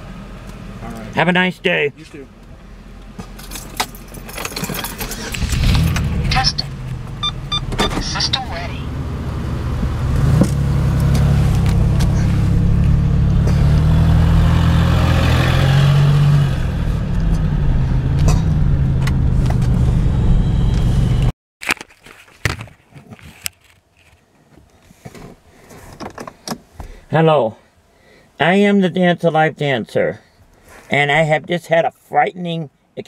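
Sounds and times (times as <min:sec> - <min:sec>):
vehicle engine and road rumble: 0:00.0 - 0:21.3.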